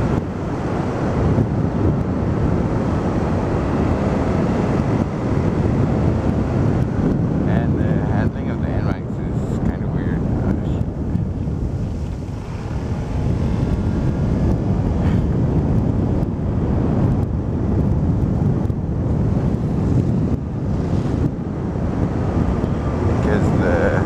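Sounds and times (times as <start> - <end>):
wind buffeting microphone: 0.0 - 24.0
scooter running: 10.6 - 23.6.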